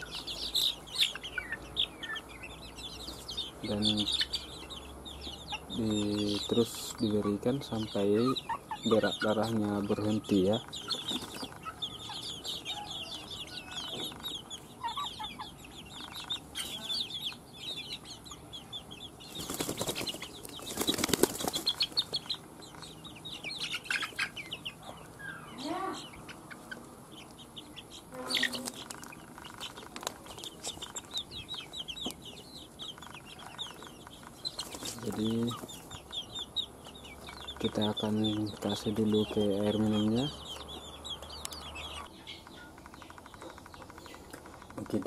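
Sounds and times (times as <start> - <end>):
chicks cheeping: 0.0 - 45.0
wing-flapping: 19.3 - 22.1.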